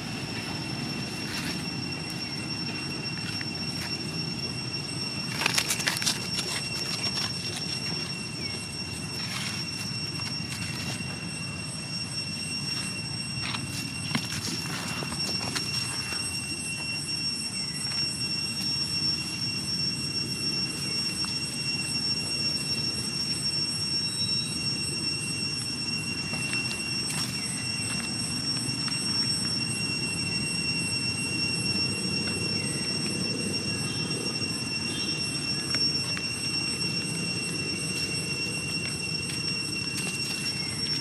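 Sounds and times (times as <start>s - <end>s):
faint chirps: 0.0s - 41.0s
high-pitched whine: 0.0s - 41.0s.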